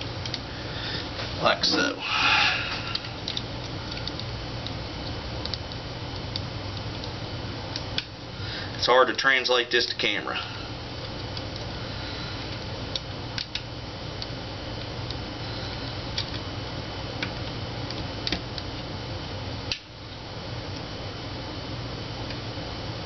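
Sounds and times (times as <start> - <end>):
steady hiss and low hum: 0.0 - 23.0.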